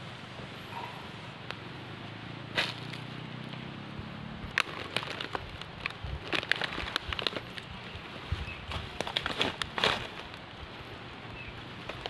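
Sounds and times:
footsteps on dry leaves and twigs: 2.5s - 3.6s, 4.4s - 12.0s.

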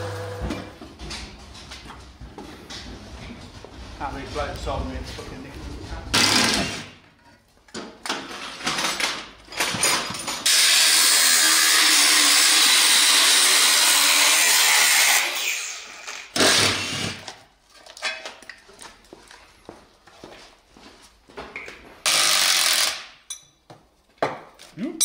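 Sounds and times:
angle grinder cutting steel: 10.4s - 17.2s.

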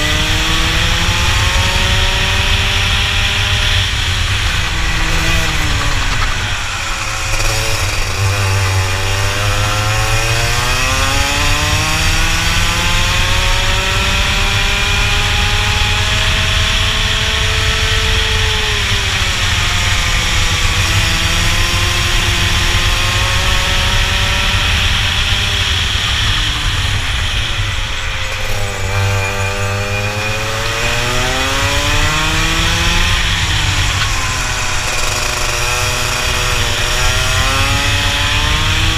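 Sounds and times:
two-stroke kart engine racing: 0.0s - 38.9s.

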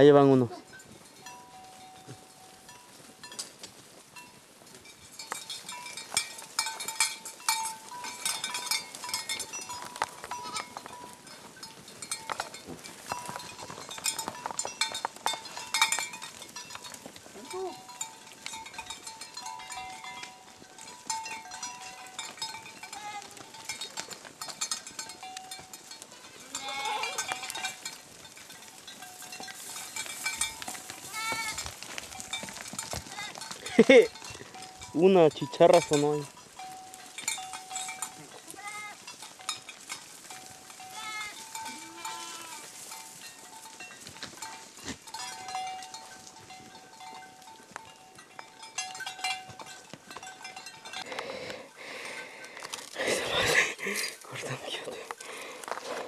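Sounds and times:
goat hooves clattering on rocks: 0.0s - 56.0s
goats bleating: 10.3s - 10.8s, 22.8s - 23.6s, 26.1s - 27.8s, 31.0s - 31.7s, 32.9s - 34.7s, 38.0s - 39.1s, 40.8s - 42.8s, 44.9s - 45.7s.

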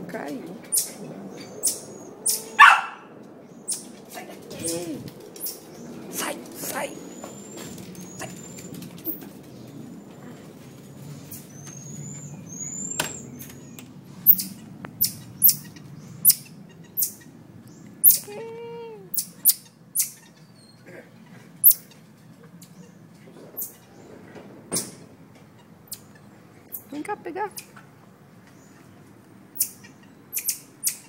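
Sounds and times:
marmosets chirping: 0.2s - 4.0s, 4.6s - 9.6s, 11.1s - 18.4s, 19.1s - 20.8s, 21.6s - 22.0s, 23.6s - 24.1s, 24.8s - 27.8s, 28.5s - 31.0s.

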